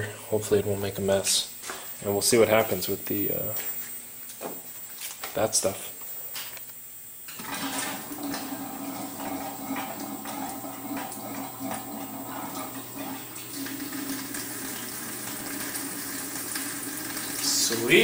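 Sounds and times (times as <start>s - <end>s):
steady pump hum: 0.0s - 18.0s.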